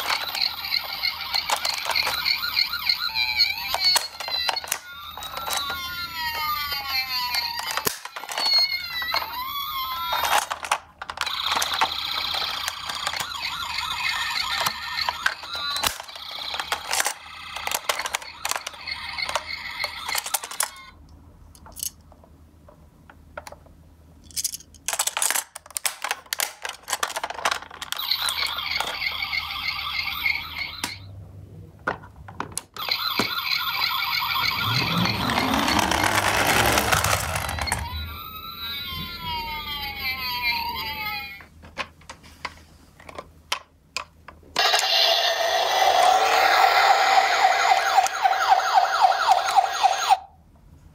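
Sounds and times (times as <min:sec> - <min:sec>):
toy electronic siren: 0:00.0 - 0:21.0, 0:27.9 - 0:31.1, 0:32.8 - 0:41.5, 0:44.6 - 0:50.4
wailing siren sweeping: 0:00.8 - 0:07.8, 0:32.8 - 0:40.1, 0:44.6 - 0:50.3.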